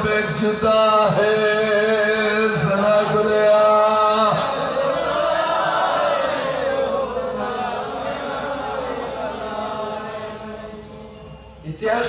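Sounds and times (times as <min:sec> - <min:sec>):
man chanting into a microphone: 0:00.0 - 0:04.6, 0:11.6 - 0:12.0.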